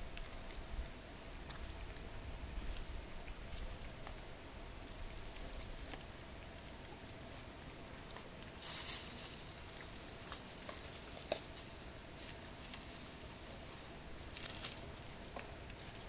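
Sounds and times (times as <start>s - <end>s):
faint background noise: 0.0s - 16.0s
leaf rustling: 4.8s - 16.0s.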